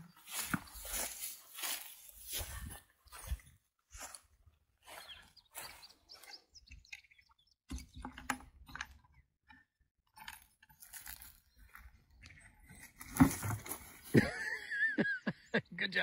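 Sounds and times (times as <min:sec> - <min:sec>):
rustling in tall grass: 0:00.1 - 0:03.4.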